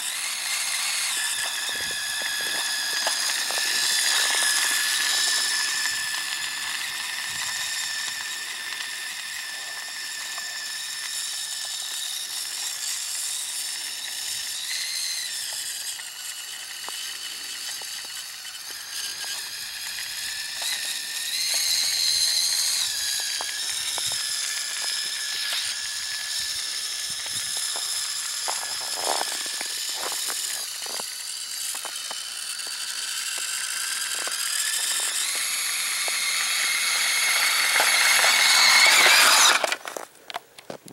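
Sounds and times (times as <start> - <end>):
toy snowmobile motor whining: 0.0 - 40.9.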